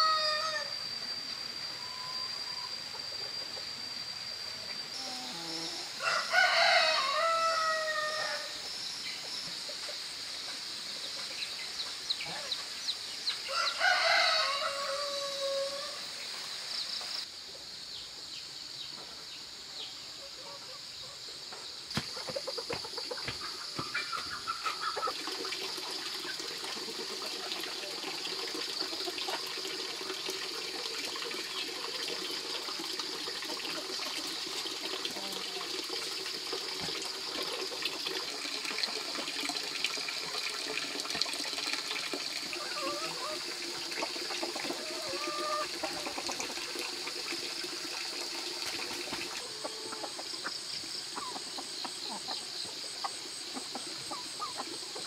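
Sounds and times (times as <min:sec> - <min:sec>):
steady high hiss: 0:00.0 - 0:55.0
chickens clucking: 0:09.2 - 0:12.8, 0:21.9 - 0:30.2, 0:35.0 - 0:35.7, 0:42.6 - 0:47.2, 0:48.2 - 0:55.0.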